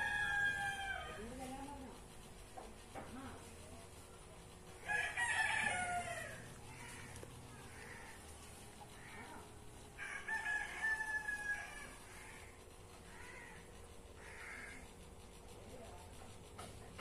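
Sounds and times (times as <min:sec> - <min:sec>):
rooster crowing: 0:00.0 - 0:01.4, 0:04.8 - 0:08.2, 0:10.0 - 0:12.5.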